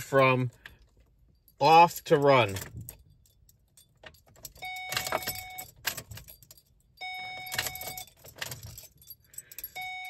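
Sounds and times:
keys jangling in ignition: 0:00.4 - 0:10.0
dashboard electronic chime: 0:09.8 - 0:10.0.

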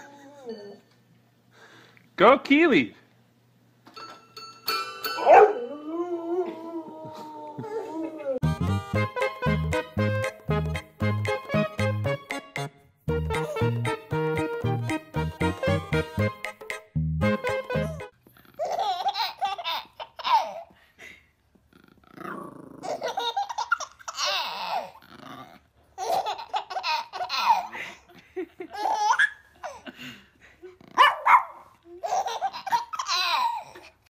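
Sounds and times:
baby laughing and squealing: 0:22.8 - 0:25.0, 0:31.9 - 0:34.0.

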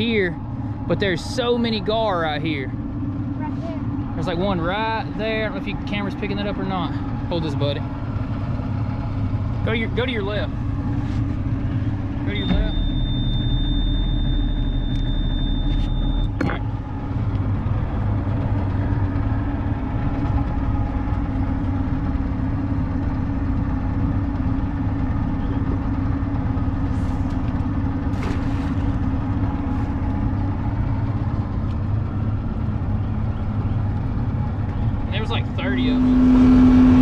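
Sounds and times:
boat motor idling: 0:00.0 - 0:37.0
thin high whine: 0:11.7 - 0:16.7, 0:35.1 - 0:37.0.

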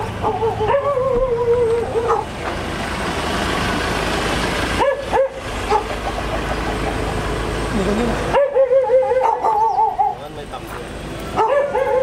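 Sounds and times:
dog yelping: 0:00.0 - 0:02.3, 0:04.8 - 0:06.0, 0:08.3 - 0:10.2, 0:11.3 - 0:12.0
dog howling: 0:00.2 - 0:02.3.

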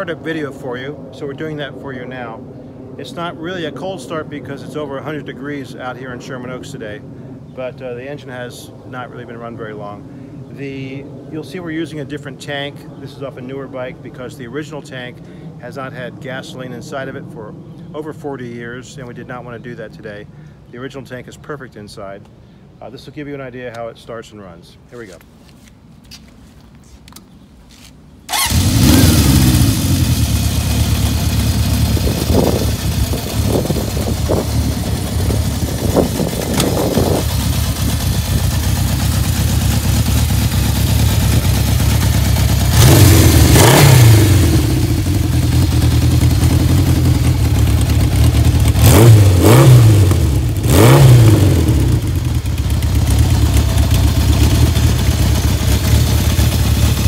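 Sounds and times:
motorcycle engine revving: 0:28.3 - 0:57.0
motorcycle engine starting and idling: 0:28.3 - 0:57.0.

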